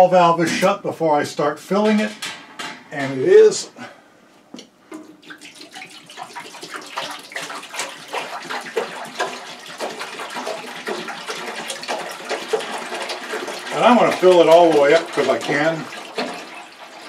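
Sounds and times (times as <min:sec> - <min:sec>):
water pouring into metal tank: 0:04.9 - 0:17.0.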